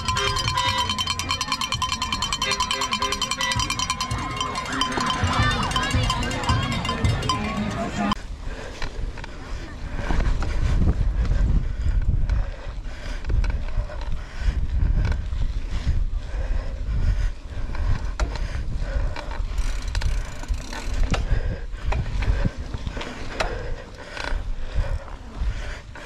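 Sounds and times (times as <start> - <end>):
bike chain rattling and clicking: 0.0 - 9.3, 16.4 - 25.2
tyres rumbling on dirt trail: 0.0 - 26.0.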